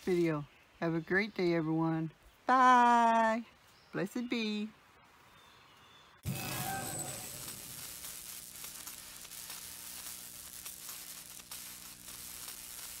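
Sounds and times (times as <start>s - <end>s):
crackling static hiss: 0.0s - 5.4s, 6.0s - 13.0s
light crackles: 6.2s - 13.0s.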